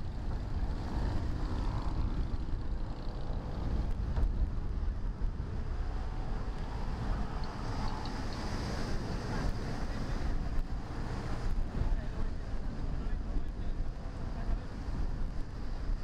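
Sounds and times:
wind rumbling on microphone: 0.0 - 16.0.

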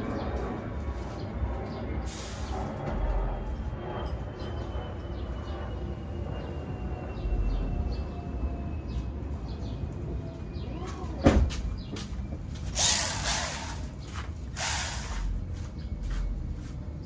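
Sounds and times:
short hissing bursts: 12.8 - 13.8, 14.5 - 15.3.

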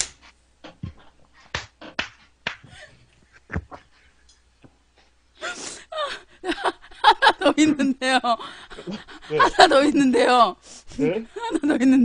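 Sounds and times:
woman laughing hard: 5.5 - 9.9.

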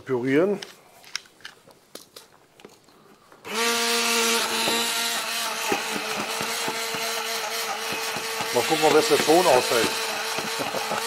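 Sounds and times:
stick blender motor whirring: 3.4 - 11.0
sharp knocks: 7.8 - 9.6.

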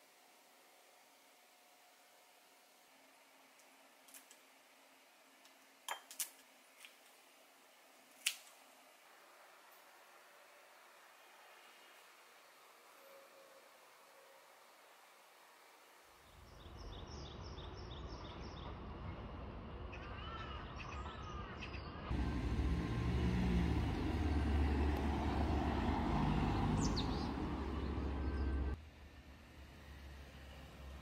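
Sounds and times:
low rumble of passing traffic: 22.0 - 31.0
small birds chirping: 26.2 - 28.8.

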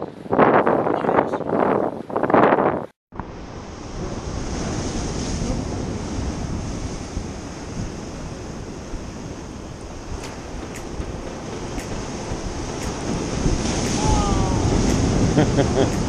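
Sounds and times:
wind blowing across microphone: 0.0 - 16.0
surf breaking against rocks: 3.2 - 16.0.

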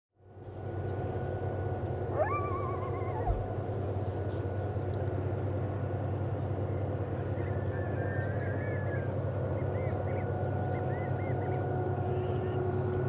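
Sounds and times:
diesel locomotive rumble and whine: 0.2 - 13.0
coyotes yipping and howling: 1.7 - 4.5.

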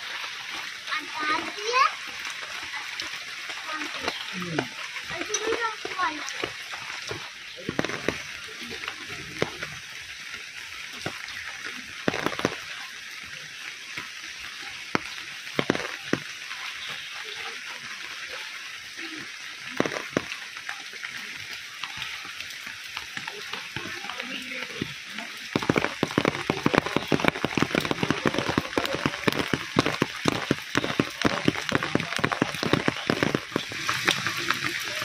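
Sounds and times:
rain on tarpaulin and leaves: 0.0 - 35.0
knocks and drips: 3.0 - 9.9, 11.0 - 12.8, 14.9 - 18.3, 19.7 - 21.0, 21.8 - 35.0.

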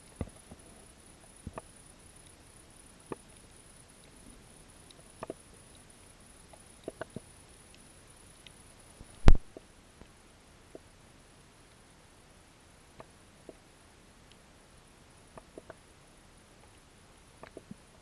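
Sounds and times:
underwater clicks and pops: 9.2 - 9.5.

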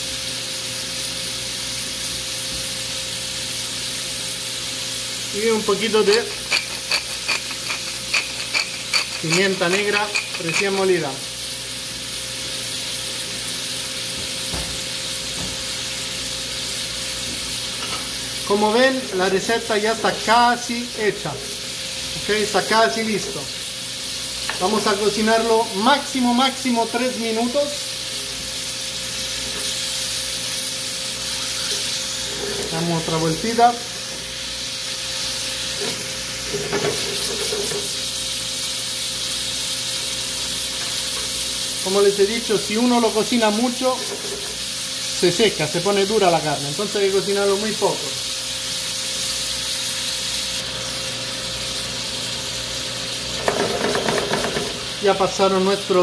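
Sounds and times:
sauce bubbling and sizzling: 0.0 - 56.0
pan shaken on grate: 5.7 - 11.0, 53.4 - 54.9.

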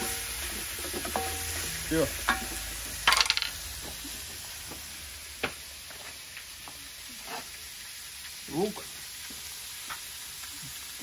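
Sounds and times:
meat sizzling in a pan: 0.0 - 11.0
metallic clatter of kitchen things: 2.2 - 3.9.

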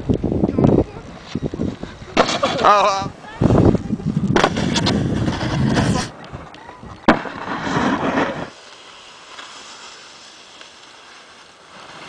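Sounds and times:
snowboard edge scraping snow: 1.0 - 6.2, 7.1 - 12.0.

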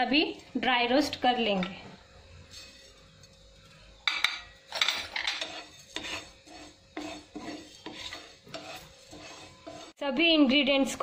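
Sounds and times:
wooden spatula scraping pan: 2.4 - 3.4, 4.7 - 10.0.

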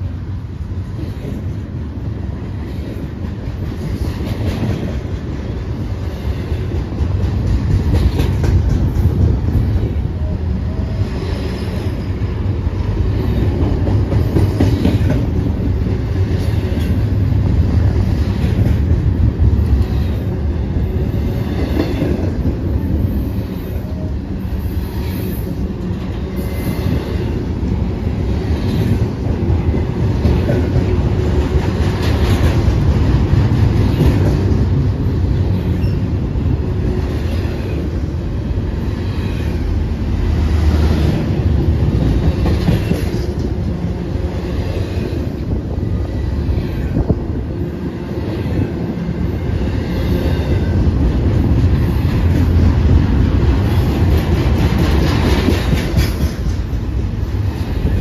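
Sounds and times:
freight train wheels rumbling: 0.0 - 58.0
wheels clacking on rail joints: 2.7 - 10.3, 40.7 - 43.8, 50.1 - 58.0.

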